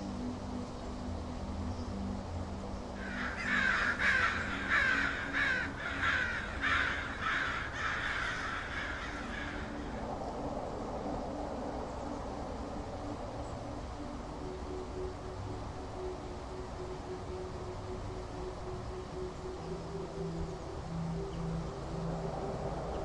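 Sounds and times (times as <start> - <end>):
low steady drone: 0.0 - 23.0
crows cawing: 3.0 - 10.0.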